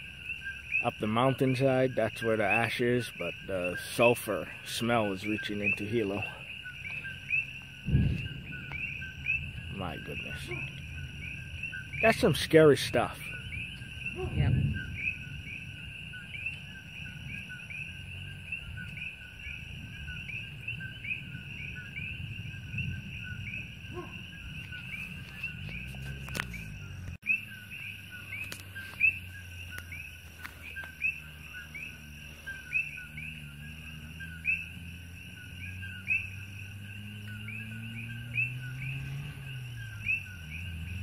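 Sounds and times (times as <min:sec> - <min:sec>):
frogs calling: 0:00.0 - 0:41.0
faint low rumble: 0:05.4 - 0:27.2.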